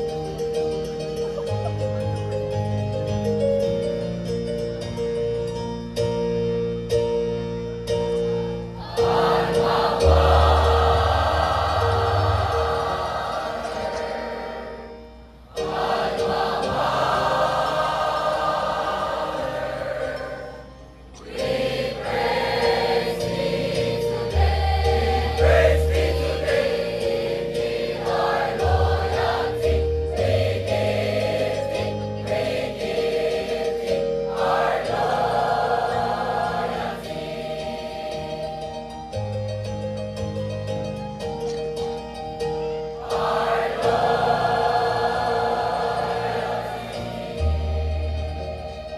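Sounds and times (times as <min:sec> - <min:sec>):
choir accompaniment: 0:08.0 - 0:39.4, 0:42.8 - 0:48.9
mixed choir singing a hymn: 0:08.8 - 0:38.9, 0:43.0 - 0:48.9.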